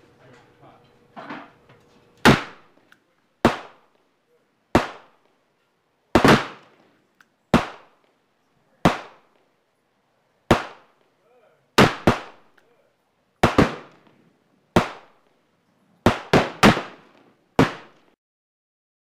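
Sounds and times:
revolver gunshots: 0:02.2 - 0:02.8, 0:03.4 - 0:03.9, 0:04.7 - 0:05.2, 0:06.1 - 0:06.8, 0:07.5 - 0:08.0, 0:08.8 - 0:09.3, 0:10.5 - 0:11.0, 0:11.8 - 0:12.6, 0:13.4 - 0:14.1, 0:14.7 - 0:15.2, 0:16.0 - 0:18.0.

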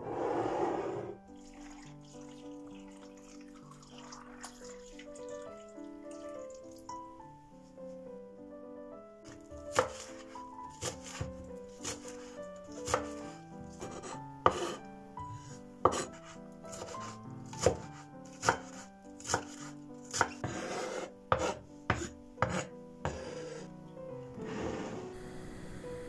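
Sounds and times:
knife chopping on wooden board: 0:09.3 - 0:14.8, 0:15.4 - 0:23.4.

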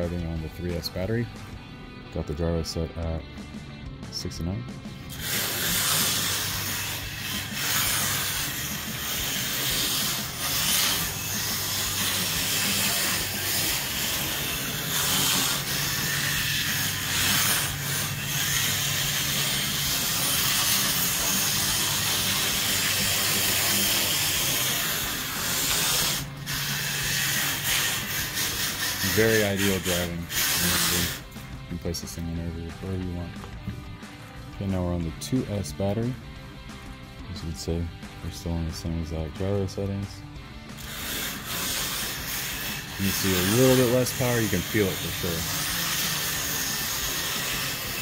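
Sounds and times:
electric motor whir: 0:04.9 - 0:31.8, 0:40.4 - 0:48.0.

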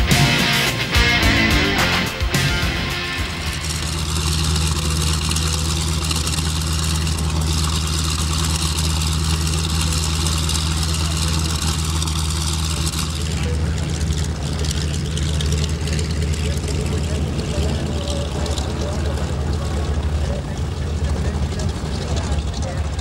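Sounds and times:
radial engine idling: 0:00.0 - 0:23.0.

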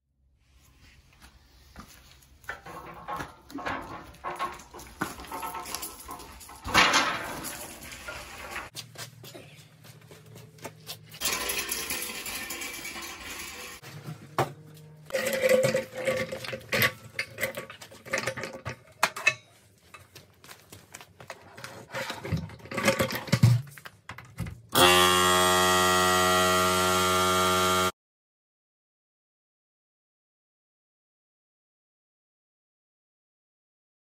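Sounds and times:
handling and clattering noises: 0:01.8 - 0:24.7
air compressor motor hum: 0:24.8 - 0:27.9.

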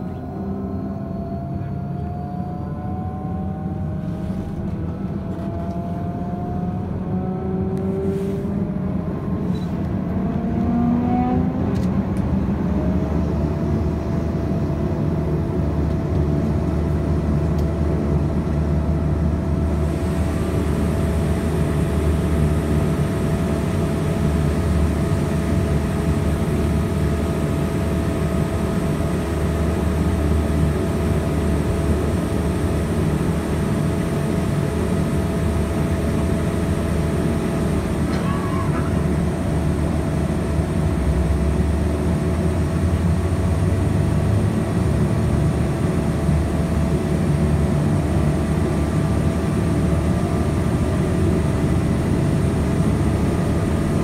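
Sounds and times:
low drone: 0:00.0 - 0:54.0
turboprop engine whining: 0:00.0 - 0:54.0.

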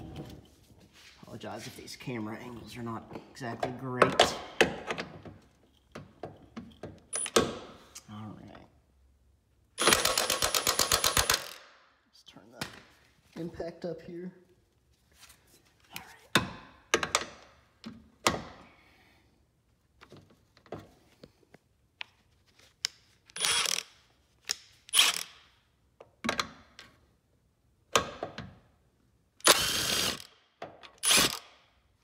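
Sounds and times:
impact wrench bursts: 0:09.8 - 0:11.6, 0:23.4 - 0:24.0, 0:24.9 - 0:25.5, 0:29.4 - 0:30.4, 0:31.0 - 0:31.6.

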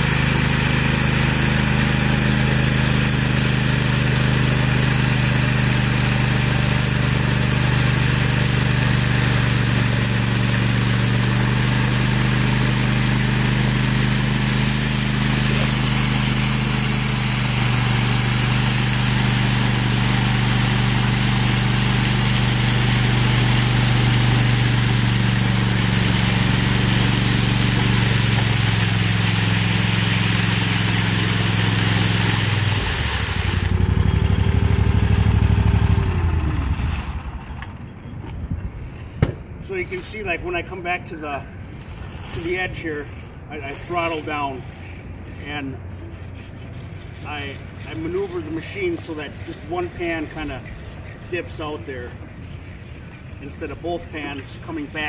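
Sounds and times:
power trowel engine running: 0:00.0 - 0:39.0, 0:39.8 - 0:55.0.

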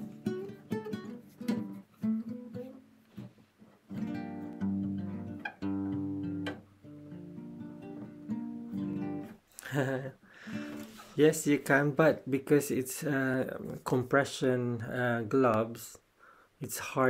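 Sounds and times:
guitar picking and strumming: 0:00.0 - 0:09.5, 0:10.4 - 0:11.1.

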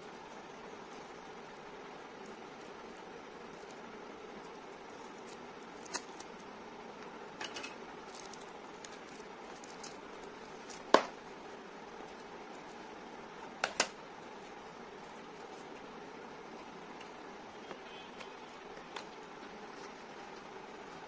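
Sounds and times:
steady low hiss: 0:00.0 - 0:21.0.

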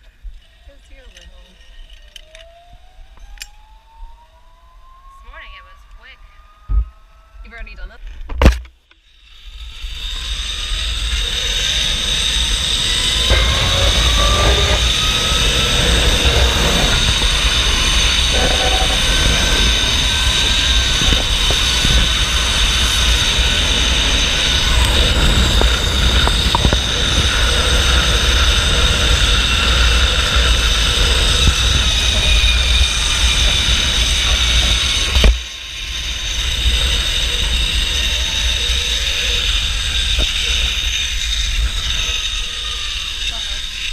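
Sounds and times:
rising whine: 0:02.1 - 0:07.4, 0:09.3 - 0:43.9
pulleys rolling along cable: 0:09.1 - 0:43.9
wind buffeting microphone: 0:09.9 - 0:35.3.

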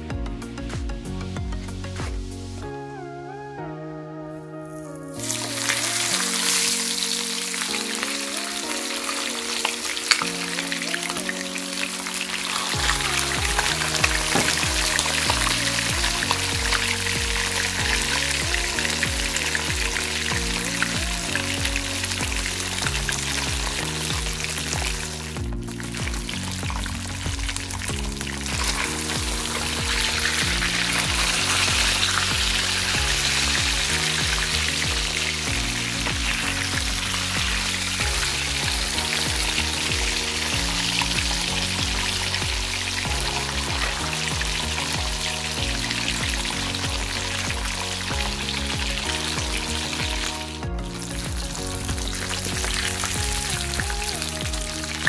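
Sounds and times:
background music: 0:00.0 - 0:55.0
hot oil sizzling: 0:04.4 - 0:55.0.

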